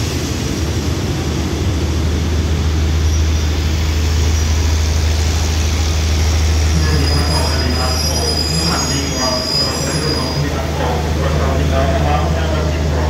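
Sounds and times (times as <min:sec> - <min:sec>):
train rumbling past: 0:00.0 - 0:13.0
high metallic squeal: 0:06.7 - 0:10.6.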